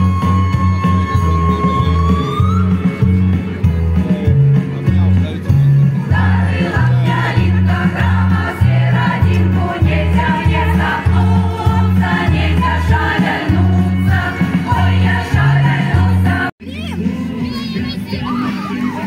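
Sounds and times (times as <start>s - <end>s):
pulsing bass line: 0.0s - 16.5s
voices singing together: 6.0s - 16.5s.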